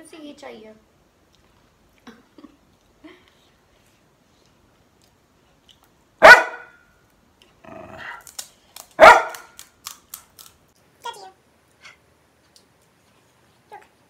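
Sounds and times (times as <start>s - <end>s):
dog barking: 6.2s - 6.8s, 9.0s - 9.6s.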